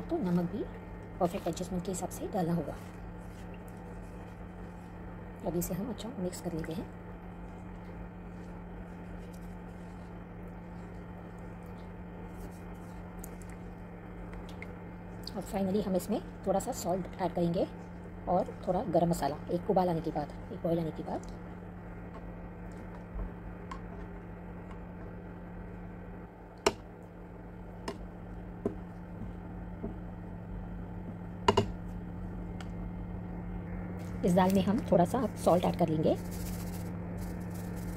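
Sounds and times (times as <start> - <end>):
steady low hum: 0.0 - 37.9
plastic spatula knocking on pan: 31.4 - 31.8.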